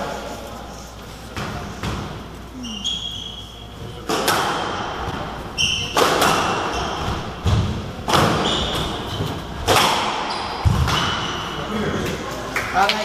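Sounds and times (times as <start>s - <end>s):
squash ball hitting rackets and walls: 1.3s - 2.3s, 3.8s - 13.0s.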